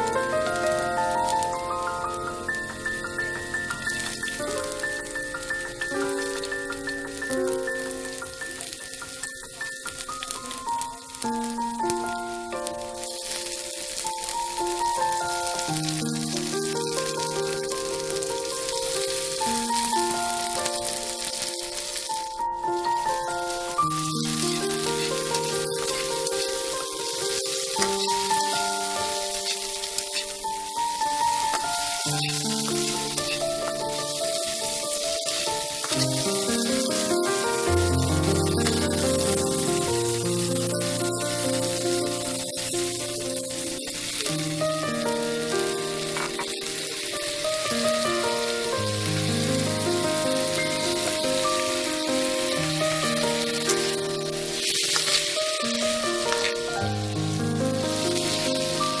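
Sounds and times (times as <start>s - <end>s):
background music of held notes: 0.0s - 59.0s
vegetables sizzling in oil: 0.0s - 59.0s.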